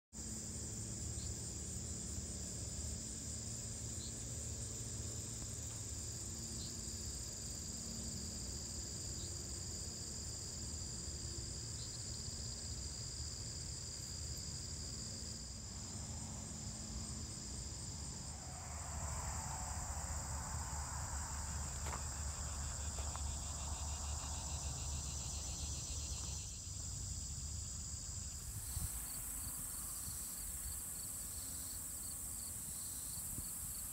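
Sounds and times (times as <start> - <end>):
insects trilling: 0.2 - 33.9
low steady rumble: 15.9 - 25.2.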